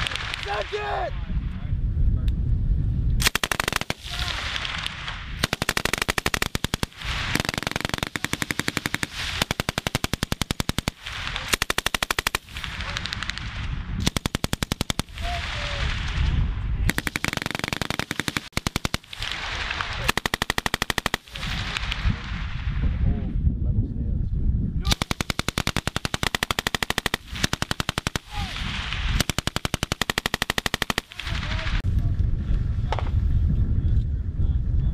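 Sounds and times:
machine gun bursts: 3.2 - 13.4, 16.9 - 19.3, 20.0 - 21.3, 24.9 - 28.4, 29.2 - 31.4.

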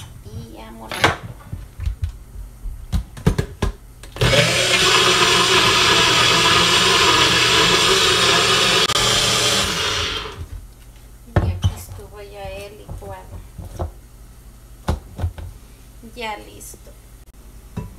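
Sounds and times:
blender motor running: 4.2 - 10.4.

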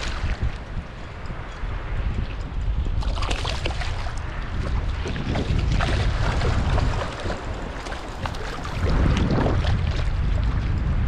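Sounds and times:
wind buffeting microphone: 0.0 - 11.0
fish splashing in water: 3.0 - 10.0.

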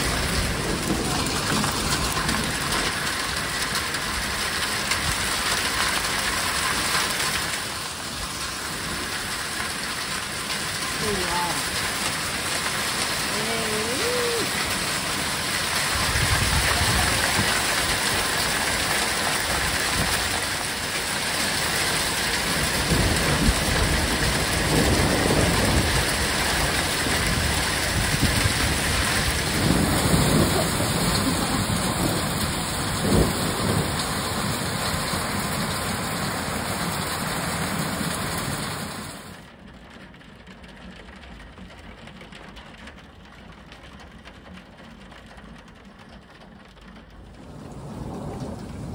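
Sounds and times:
thunder rumbling: 0.0 - 6.7, 8.8 - 39.2, 47.1 - 48.9
heavy rain and hail: 0.0 - 48.9.

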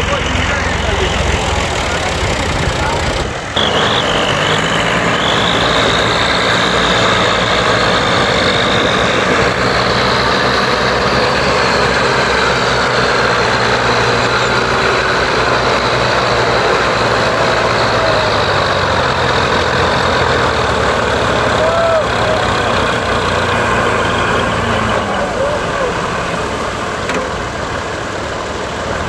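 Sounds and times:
tractor engines under load: 0.0 - 29.0.

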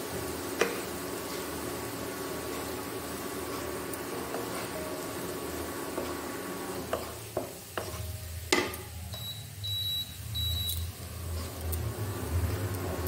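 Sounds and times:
garlic frying in oil: 0.0 - 13.0
spatula knocking on wok: 6.9 - 8.8
cooktop beeps: 8.2 - 11.0.

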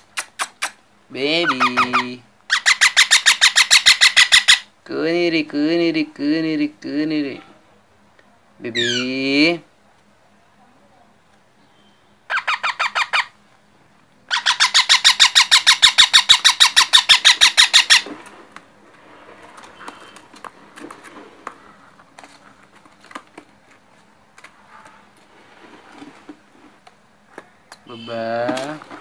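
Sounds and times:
parakeet chick squawking: 1.4 - 4.7, 8.7 - 9.2, 12.3 - 13.4, 14.3 - 18.2.

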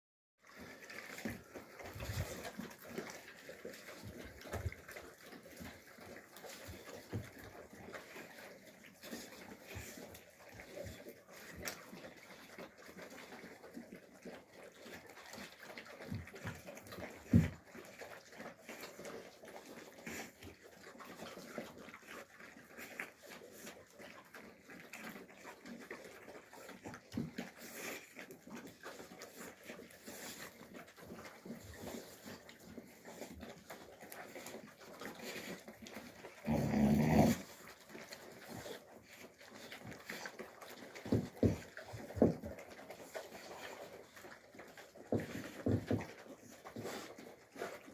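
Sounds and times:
puppies eating from bowls: 0.4 - 47.9
puppy growling: 23.6 - 40.1.

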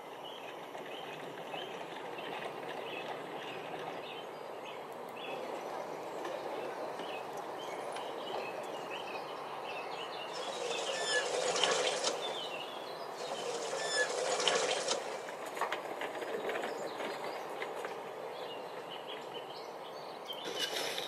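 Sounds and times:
birds chirping and singing: 7.0 - 14.9.

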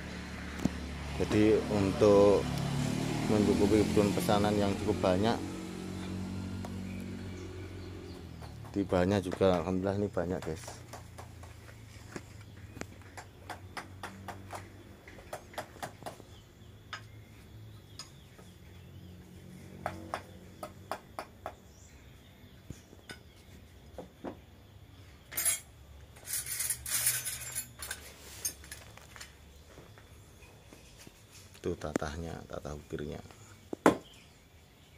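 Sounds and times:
chisel tapping wood: 8.2 - 11.6, 13.1 - 16.2
metal chisels clattering: 25.3 - 29.0.

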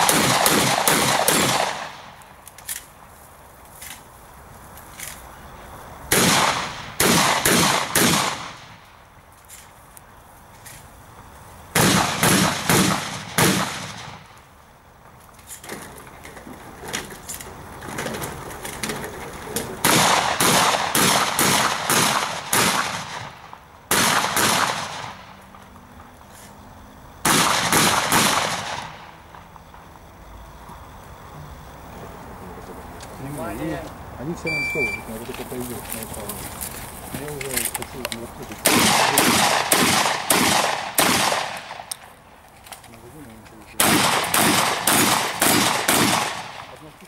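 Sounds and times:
shotgun shots: 0.0 - 2.2, 6.1 - 8.8, 11.7 - 14.4, 19.8 - 25.4, 27.2 - 29.1, 38.6 - 41.9, 43.8 - 46.8.

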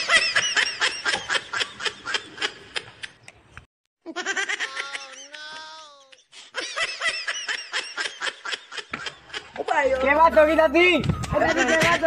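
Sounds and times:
rapid giggling laughter: 4.1 - 10.0.

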